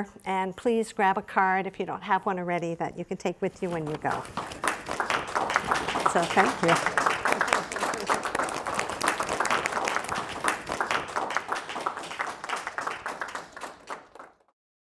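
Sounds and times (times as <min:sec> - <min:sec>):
audience applauding: 0:04.0 - 0:14.5.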